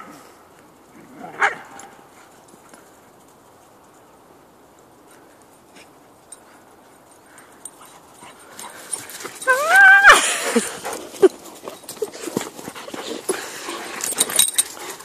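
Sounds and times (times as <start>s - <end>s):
dog whining: 9.4s - 10.3s
dog whimpering: 9.4s - 10.8s.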